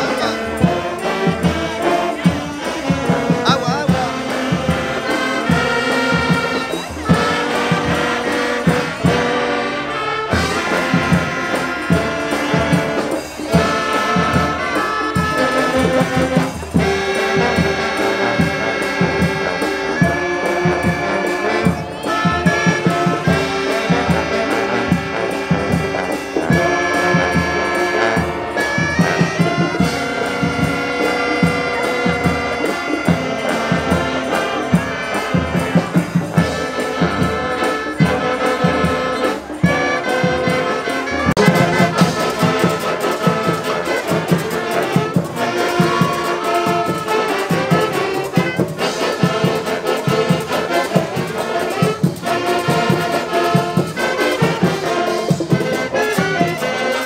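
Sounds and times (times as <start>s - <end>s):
steady beat: 0.0s - 9.7s, 10.3s - 57.0s
brass music with trumpet and trombone: 0.0s - 57.0s.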